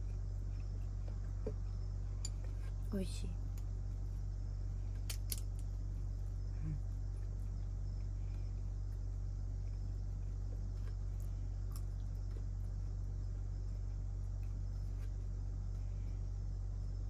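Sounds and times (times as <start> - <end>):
low hum: 0.0 - 17.0
peanut shells cracking: 5.0 - 5.7.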